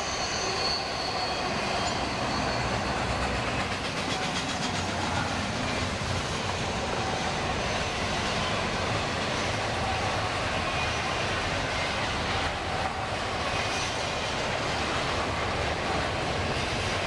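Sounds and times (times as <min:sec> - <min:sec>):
train wheels clattering over rail joints: 0:01.8 - 0:07.1.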